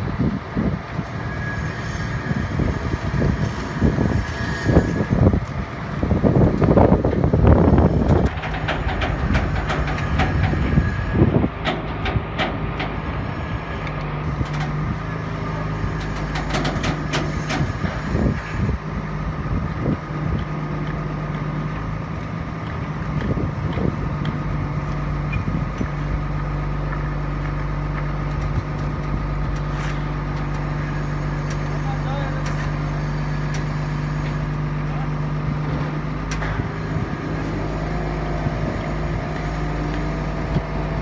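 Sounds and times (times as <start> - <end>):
truck engine running: 0.0 - 41.0
sharp knocks and clatter: 8.0 - 13.2, 16.0 - 18.1.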